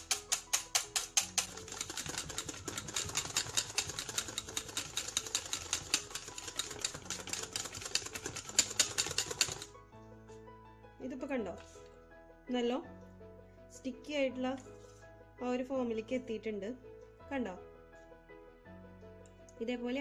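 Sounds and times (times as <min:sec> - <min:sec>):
whisk clattering in metal bowl: 0:00.0 - 0:09.7.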